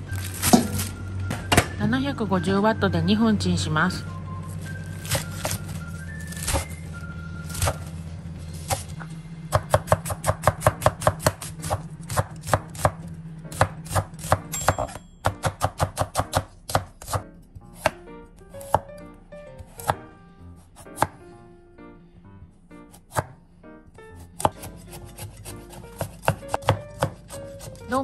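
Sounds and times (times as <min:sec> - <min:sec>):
knife chopping on wooden board: 0:09.5 - 0:17.2, 0:18.6 - 0:18.9, 0:23.0 - 0:23.4, 0:24.3 - 0:27.8.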